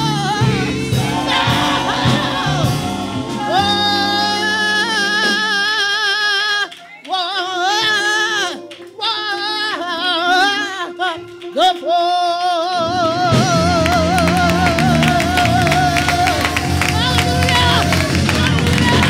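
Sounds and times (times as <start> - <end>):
low instrumental bass line: 0.0 - 5.7
hand claps: 6.6 - 7.2, 8.6 - 9.0, 13.8 - 19.0
woman singing with vibrato: 11.9 - 19.0.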